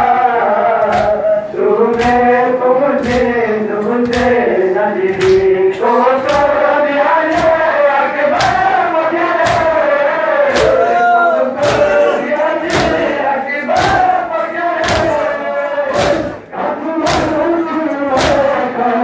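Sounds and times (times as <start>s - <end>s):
men chanting: 0.0s - 19.0s
hands striking chests: 3.0s - 3.4s, 7.3s - 7.7s, 8.3s - 8.7s, 9.4s - 9.8s, 11.6s - 13.1s, 13.7s - 14.1s, 14.8s - 15.2s, 15.9s - 16.4s, 17.0s - 17.4s, 18.1s - 18.6s.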